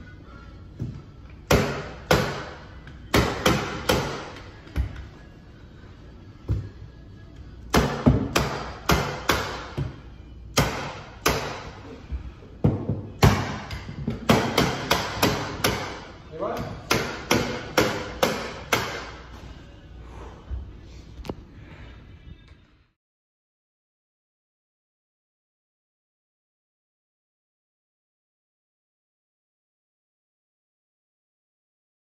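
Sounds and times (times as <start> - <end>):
background music: 0.0 - 23.0.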